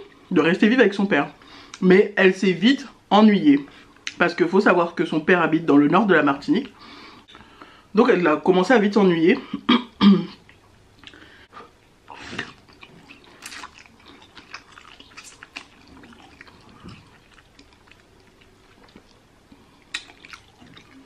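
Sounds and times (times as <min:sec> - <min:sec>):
noodle slurps: 0:12.1 - 0:19.1
wet chewing clicks: 0:12.1 - 0:21.0.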